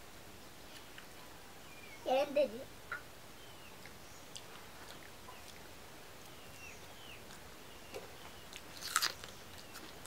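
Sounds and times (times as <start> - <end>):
faint background hiss: 0.0 - 10.0
crunch of biting raw onion: 8.6 - 10.0.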